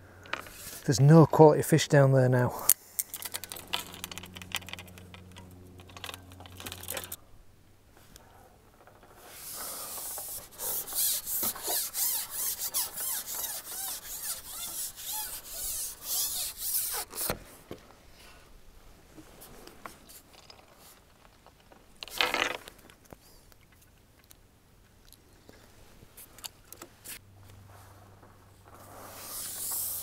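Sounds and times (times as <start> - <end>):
low steady hum: 0.0 - 10.6
fishing pole squeaking and rasping: 9.2 - 17.3.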